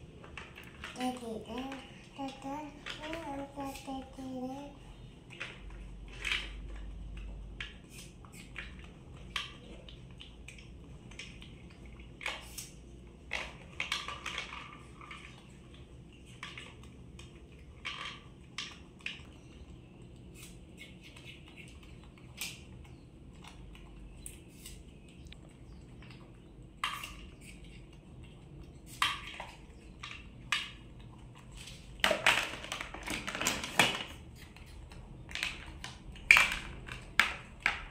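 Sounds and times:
plastic toys clattering: 0.0 - 4.7, 5.3 - 9.9, 12.2 - 15.4, 17.7 - 19.3, 31.4 - 37.9.

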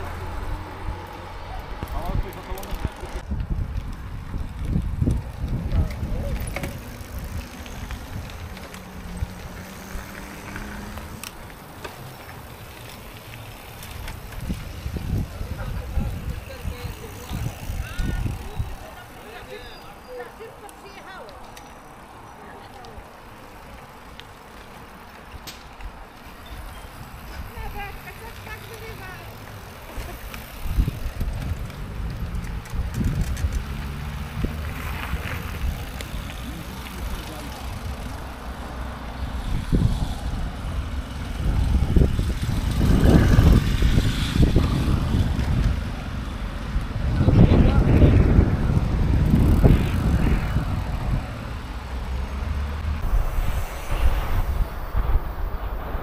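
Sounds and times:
wind buffeting microphone: 0.0 - 11.8, 12.4 - 19.5, 29.6 - 56.0
bicycle road rumble: 0.0 - 56.0
small clicks: 31.4 - 34.0.

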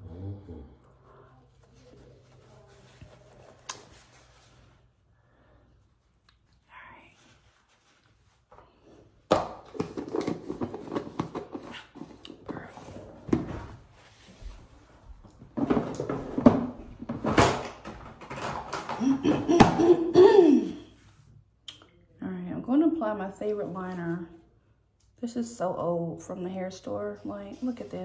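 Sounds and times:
person humming or speaking: 0.0 - 0.8.

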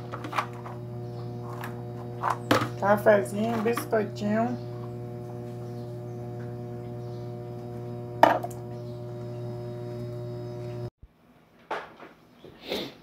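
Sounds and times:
low electrical hum: 0.0 - 10.9.

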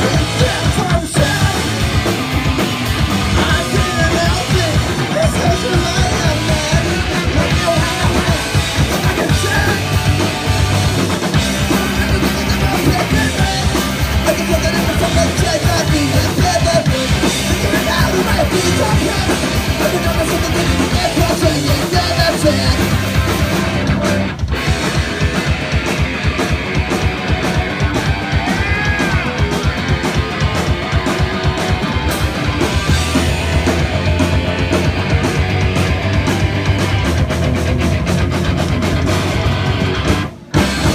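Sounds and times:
person singing: 0.0 - 2.2, 3.2 - 10.4, 11.3 - 24.2
drum kit: 0.0 - 40.9
electric guitar: 0.0 - 40.9.

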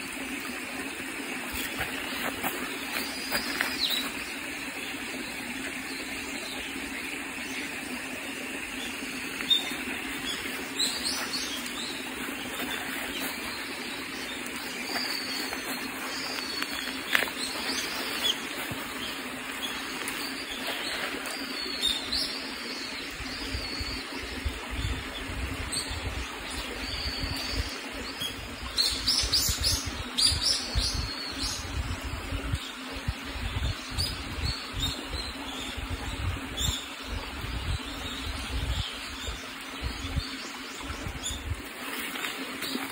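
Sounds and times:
stream running over rocks: 0.0 - 42.9
small birds chirping: 0.7 - 42.9.

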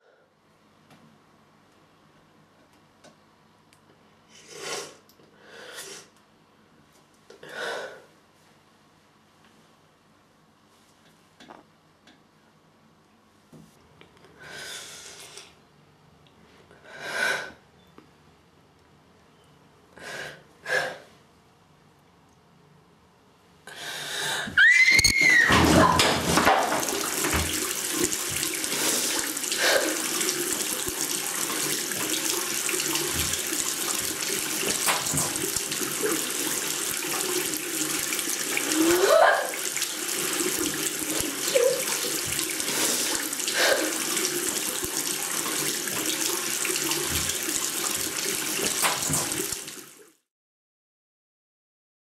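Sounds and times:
bath tap running into tub: 24.6 - 50.2.

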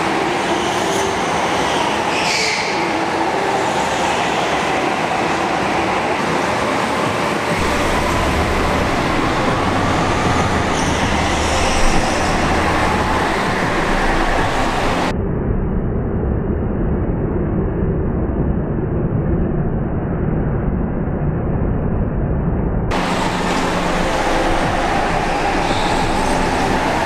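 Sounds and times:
go-kart engines droning: 0.0 - 15.1, 22.9 - 27.0.

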